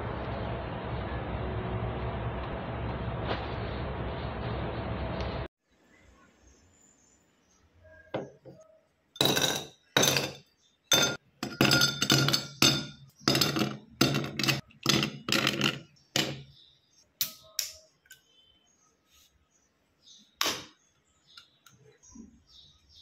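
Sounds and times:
glass clinking: 0:09.2 - 0:16.4.

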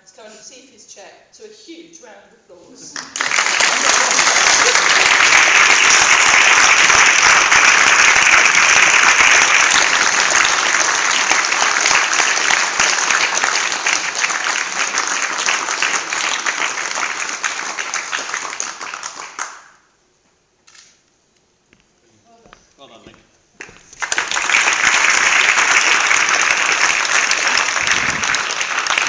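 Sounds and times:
audience applauding: 0:03.0 - 0:19.8, 0:23.6 - 0:29.0.

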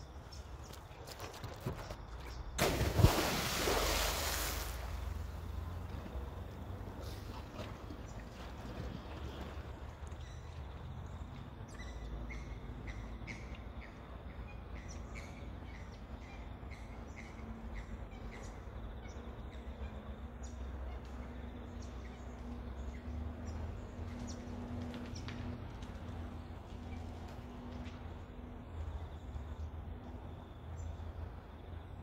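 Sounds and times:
faint steady hum: 0:02.2 - 0:32.0
low outdoor rumble: 0:02.6 - 0:13.2, 0:13.8 - 0:32.0.

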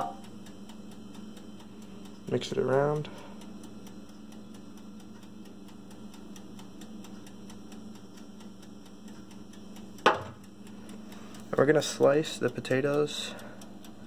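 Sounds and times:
faint ticking: 0:00.0 - 0:14.0
low electrical hum: 0:00.0 - 0:14.0
metal pan clunk on counter: 0:10.1 - 0:10.4.

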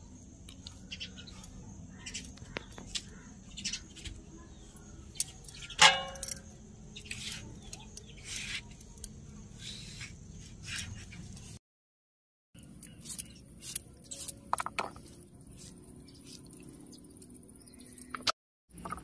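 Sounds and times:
sharp knock with short ring: 0:05.8 - 0:06.4.

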